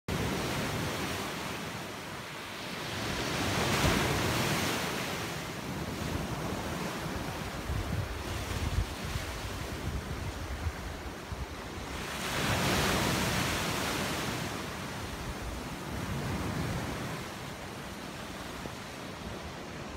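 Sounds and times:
wind buffeting microphone: 6.0 - 14.0.

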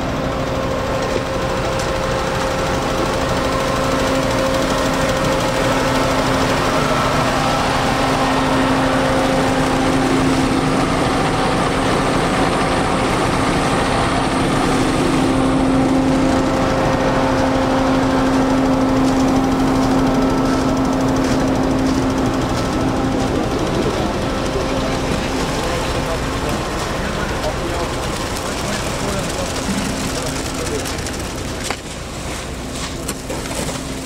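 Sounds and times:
construction machine engine running: 0.0 - 34.0.

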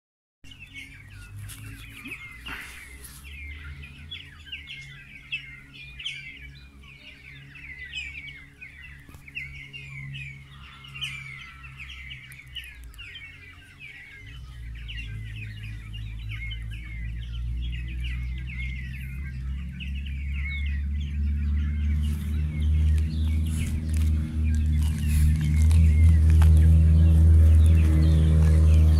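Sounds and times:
low hum: 0.5 - 28.9
small birds chirping: 0.5 - 28.9.

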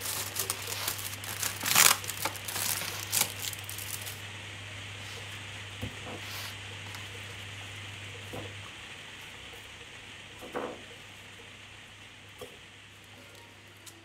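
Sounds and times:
plastic rustling: 0.0 - 4.2.

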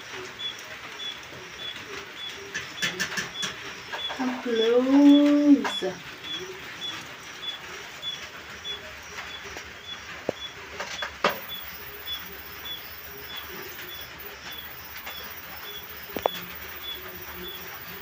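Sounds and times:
firewood crackling: 0.0 - 18.0.

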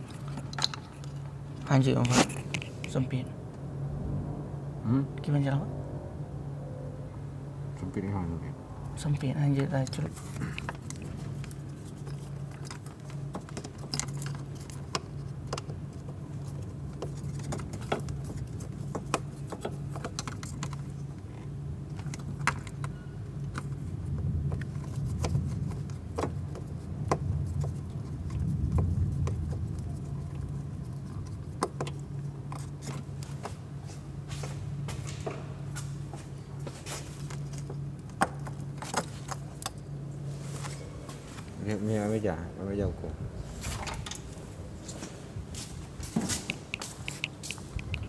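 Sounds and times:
clicks and rattles of wiring: 0.0 - 3.0, 9.2 - 39.9, 43.6 - 45.2
steady low hum: 0.0 - 48.0.

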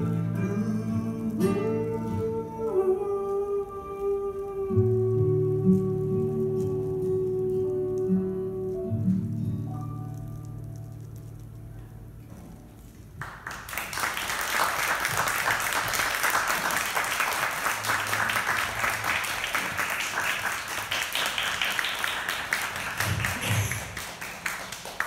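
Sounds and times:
small audience applauding: 13.2 - 25.0.

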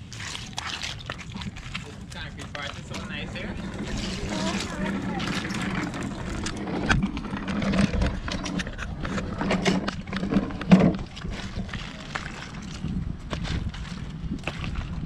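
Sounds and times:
ice knocking and clicking: 0.0 - 15.0.

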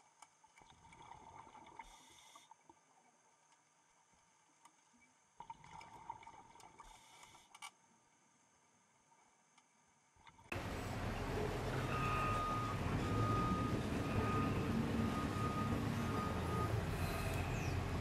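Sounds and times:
underwater scuba breathing: 16.5 - 18.0.

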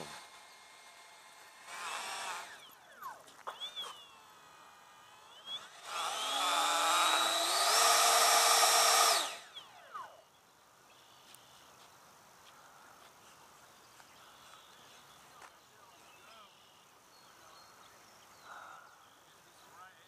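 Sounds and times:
electric ducted fans whining: 0.0 - 10.4.

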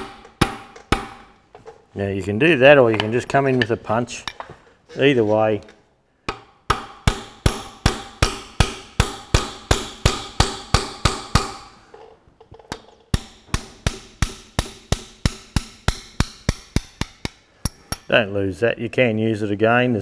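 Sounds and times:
hammer striking steel punch: 0.0 - 1.3, 6.3 - 11.7, 13.1 - 18.1.

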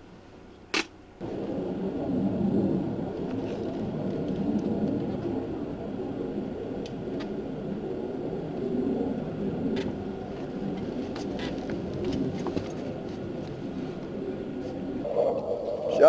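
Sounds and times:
engine running low rumble: 0.0 - 16.0.

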